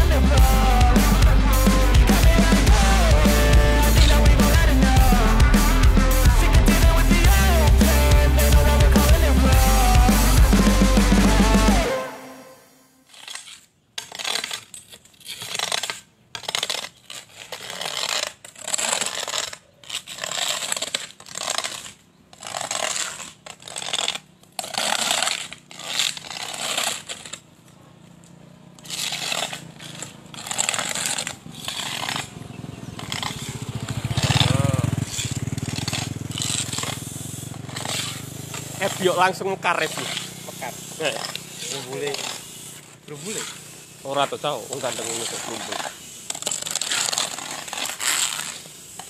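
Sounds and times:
low engine hum: 0:00.0 - 0:11.8
hoes scraping into dirt: 0:13.1 - 0:49.0.

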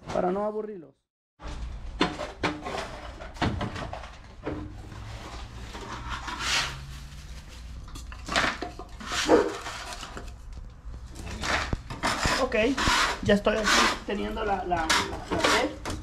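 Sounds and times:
plastic pipes knocking and scraping: 0:01.4 - 0:06.9, 0:07.8 - 0:16.0.

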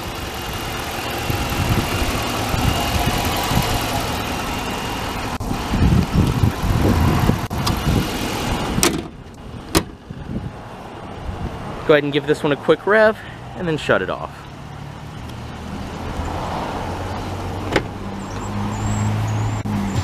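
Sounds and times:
car engine idling: 0:00.0 - 0:10.3
car hood slamming shut: 0:08.8 - 0:10.0, 0:17.7 - 0:18.0.

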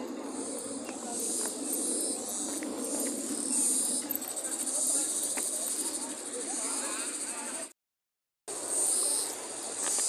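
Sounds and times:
insects trilling: 0:00.0 - 0:07.7, 0:08.6 - 0:10.0
low background murmur: 0:00.0 - 0:07.7.

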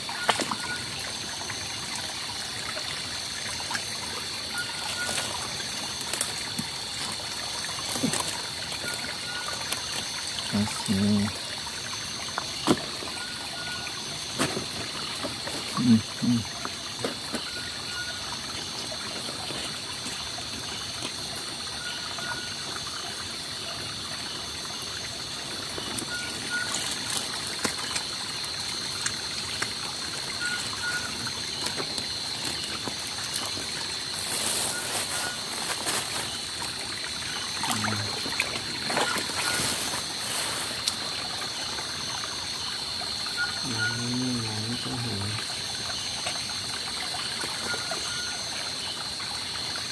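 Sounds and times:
stream trickling: 0:00.0 - 0:49.9
rustling: 0:34.2 - 0:36.4, 0:38.9 - 0:41.0.

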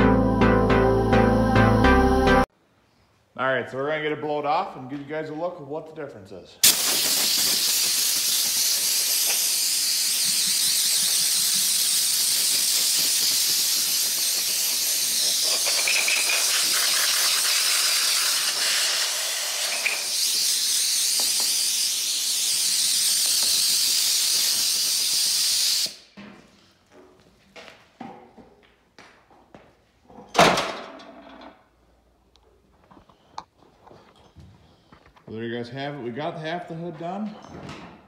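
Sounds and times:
compressed air gun hissing: 0:06.6 - 0:26.0.

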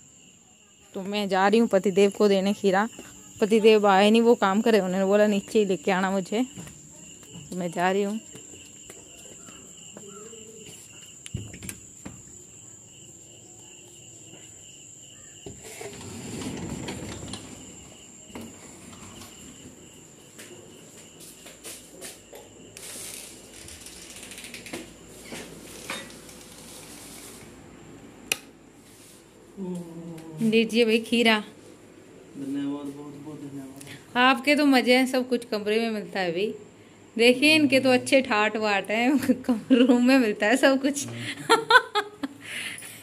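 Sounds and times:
insects chirping: 0:00.0 - 0:43.0
footsteps and shuffling: 0:06.4 - 0:12.5, 0:19.0 - 0:22.4.

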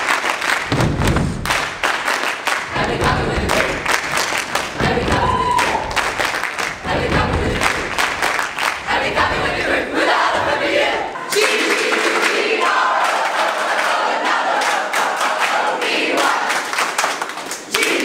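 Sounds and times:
sharp claps: 0:00.0 - 0:09.0
foot stamps: 0:00.7 - 0:01.5
pupils chanting in unison: 0:02.7 - 0:03.9, 0:08.8 - 0:16.6.

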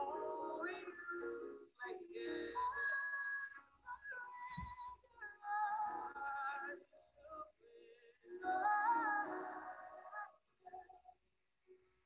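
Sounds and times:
soft slow melody: 0:00.0 - 0:07.3.

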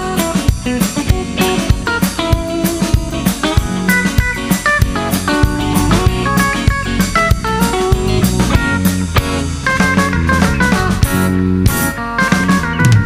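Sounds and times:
drum kit beat: 0:00.0 - 0:11.9
guitar notes: 0:04.9 - 0:11.0.

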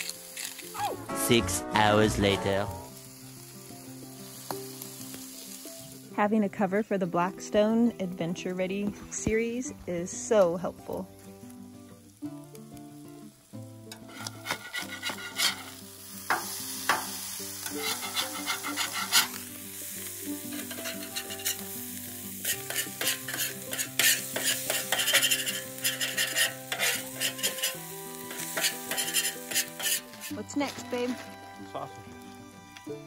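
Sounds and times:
potatoes sizzling on a griddle: 0:00.0 - 0:00.9, 0:01.8 - 0:33.0
metal spatula scraping griddle: 0:13.9 - 0:30.8.

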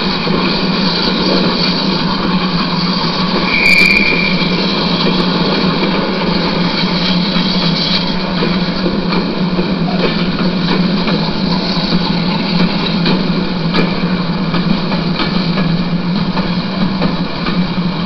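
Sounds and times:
model train wheels and motor rumble: 0:00.0 - 0:18.0
high squeal: 0:02.8 - 0:05.3.

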